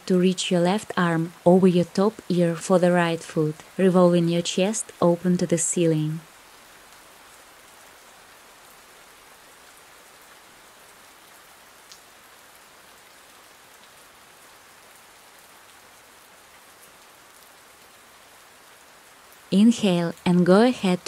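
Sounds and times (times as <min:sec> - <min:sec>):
faint rain patter: 0:00.0 - 0:21.0
small tick: 0:11.9 - 0:12.1.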